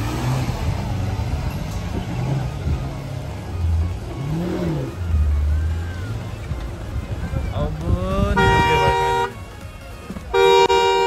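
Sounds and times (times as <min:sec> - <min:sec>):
truck engine revving under load: 0:00.0 - 0:11.0.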